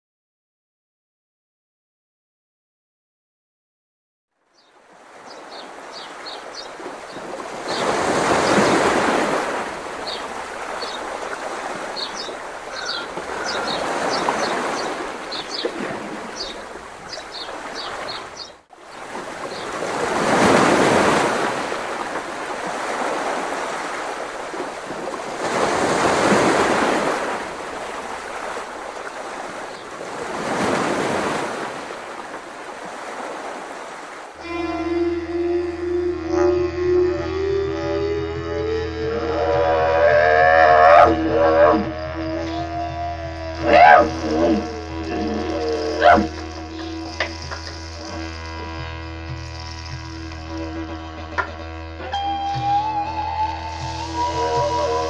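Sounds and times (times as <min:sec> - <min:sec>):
sea waves breaking on beach: 0:04.6 - 0:34.5.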